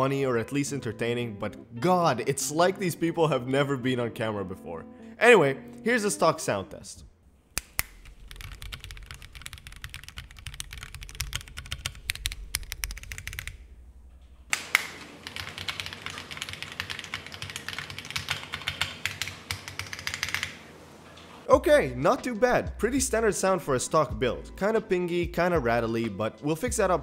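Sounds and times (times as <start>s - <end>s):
mechanical keyboard key clacks: 7.6s - 13.6s.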